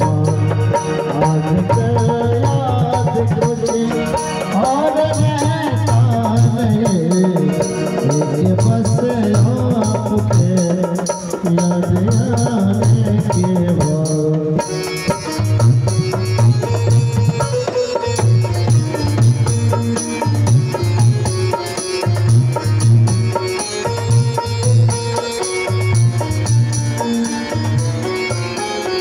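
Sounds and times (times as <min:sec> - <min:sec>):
person singing: 0:00.0 - 0:15.2
dholak and drum-pad beats: 0:00.0 - 0:29.0
heavy low beat: 0:00.0 - 0:29.0
keyboard melody: 0:00.0 - 0:29.0.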